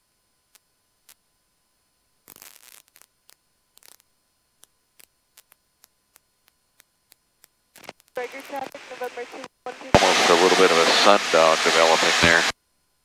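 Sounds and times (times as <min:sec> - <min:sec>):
faint static crackles: 0:00.0 - 0:13.0.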